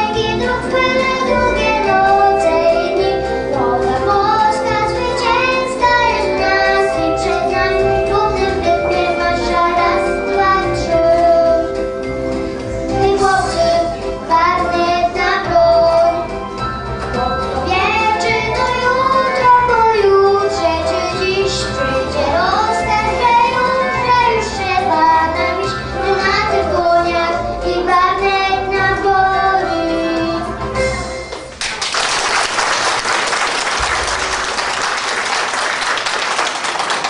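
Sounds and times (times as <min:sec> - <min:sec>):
boy singing into a microphone: 0:00.0 - 0:11.7, 0:12.9 - 0:16.2, 0:17.2 - 0:30.4
musical accompaniment with steady beat: 0:00.0 - 0:31.6
audience applauding: 0:31.3 - 0:37.0.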